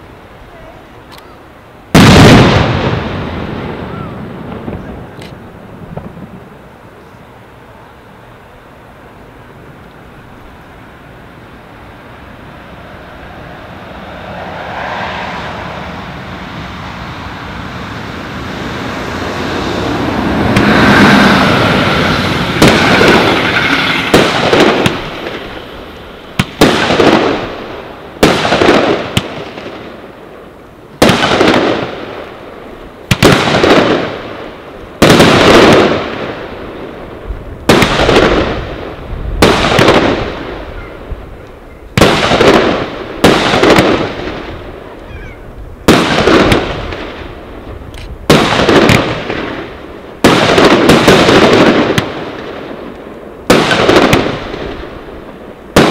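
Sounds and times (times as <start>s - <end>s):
fireworks bursting with echo: 0.0s - 8.3s, 11.4s - 55.9s.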